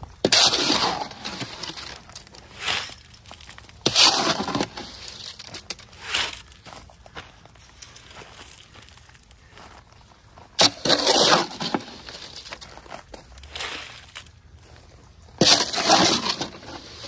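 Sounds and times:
shovel scraping wet concrete: 0:00.0 - 0:06.6, 0:10.6 - 0:12.7, 0:13.4 - 0:14.3, 0:15.4 - 0:17.0.

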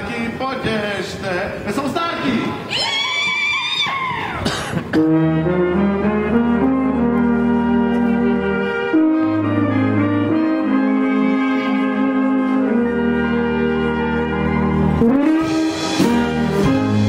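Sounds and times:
brass band playing: 0:04.4 - 0:17.0
tuba bass notes: 0:04.5 - 0:17.0.

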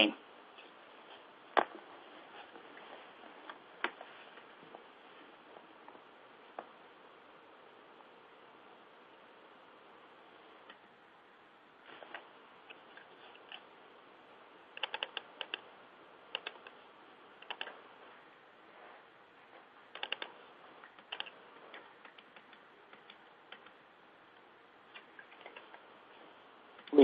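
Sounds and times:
faint keyboard typing: 0:14.7 - 0:15.7, 0:16.3 - 0:16.8, 0:17.4 - 0:17.8, 0:19.9 - 0:23.8, 0:24.9 - 0:25.8.

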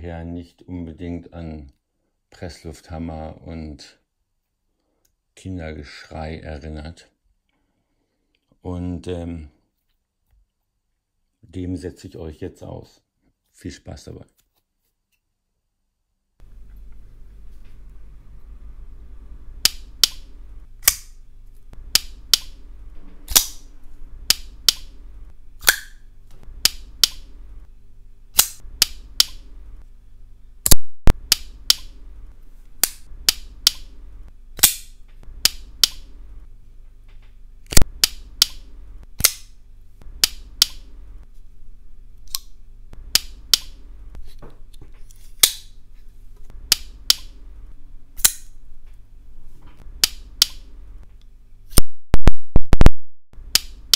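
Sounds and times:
folding knives clicking: 0:20.8 - 0:21.2, 0:23.3 - 0:23.6, 0:25.6 - 0:26.0, 0:28.4 - 0:29.4, 0:39.2 - 0:39.5, 0:45.4 - 0:45.7, 0:48.2 - 0:48.6
loud knife snaps: 0:25.6 - 0:26.0, 0:28.3 - 0:29.4, 0:34.6 - 0:36.0, 0:39.2 - 0:39.5, 0:48.2 - 0:48.6.

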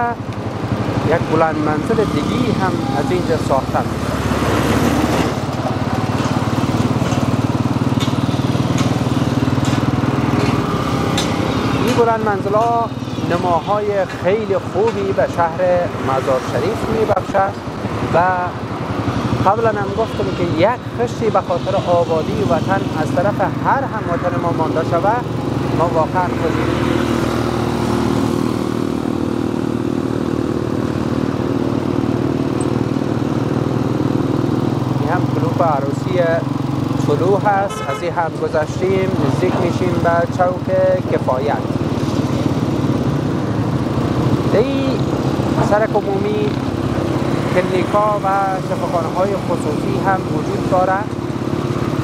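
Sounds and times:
small vehicle engine running: 0:00.0 - 0:37.6, 0:38.2 - 0:52.0.

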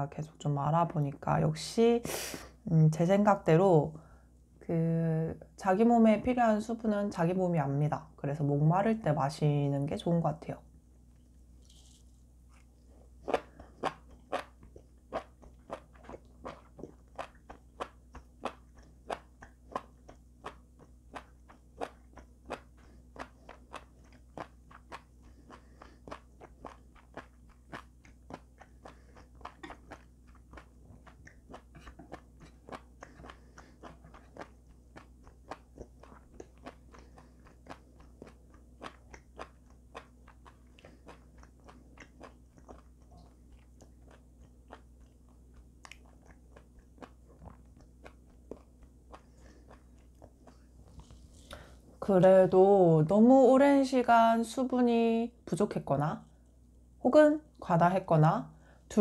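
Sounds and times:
chewing mushrooms: 0:11.7 - 0:52.0.

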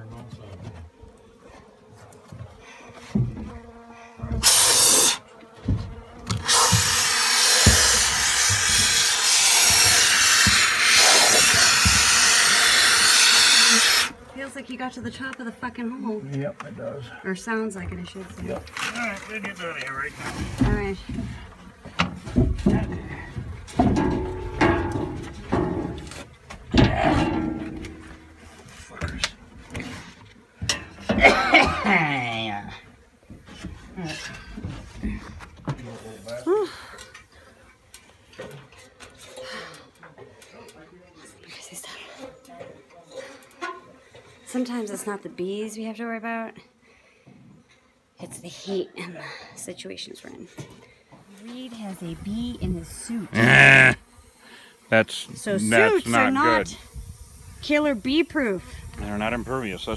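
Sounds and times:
aerosol can spraying: 0:04.4 - 0:05.2, 0:06.3 - 0:14.1, 0:56.6 - 0:59.5
knocks and scrapes: 0:20.1 - 0:31.2.

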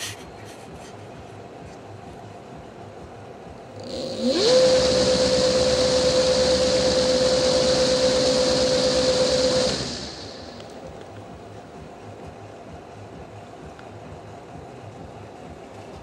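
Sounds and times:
electric motor whine: 0:03.8 - 0:10.7.

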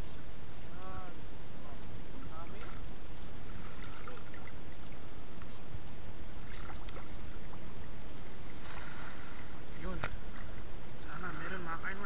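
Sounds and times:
water sloshing around net: 0:02.4 - 0:05.0, 0:06.4 - 0:10.6.

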